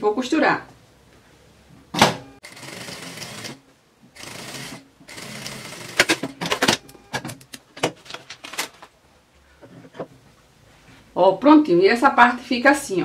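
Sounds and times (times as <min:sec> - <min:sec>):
sewing machine stitching: 0:04.2 - 0:06.5.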